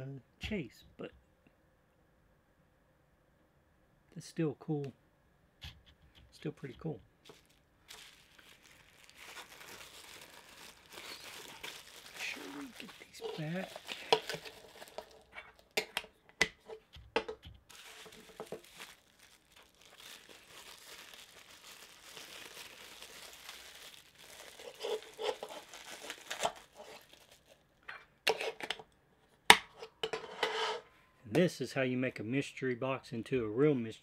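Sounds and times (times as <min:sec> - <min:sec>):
bubble wrap crinkling: 0:05.9 - 0:27.8
sharp crackles: 0:06.1 - 0:15.8, 0:17.7 - 0:27.2.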